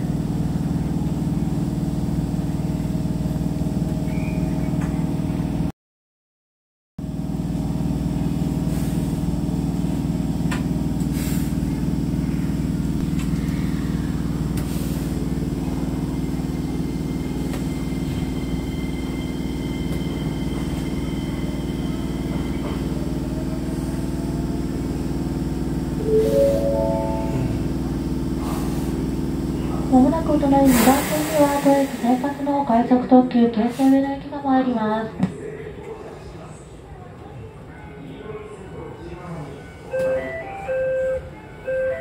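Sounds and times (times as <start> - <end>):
electric train hum: 0.0 - 5.7, 7.0 - 42.0
short rising notes: 26.0 - 28.0.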